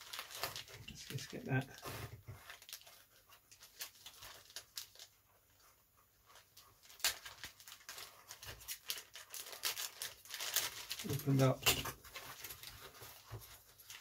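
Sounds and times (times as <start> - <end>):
plastic packaging crinkling: 0.0 - 14.0.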